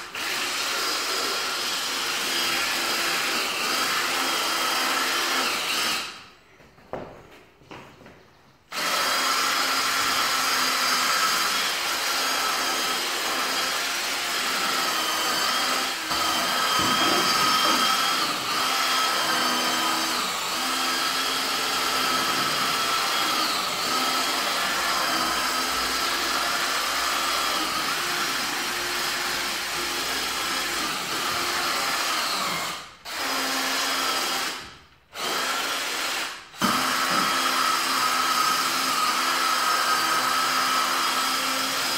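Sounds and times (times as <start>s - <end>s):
power tool motor whining: 8.7s - 34.6s.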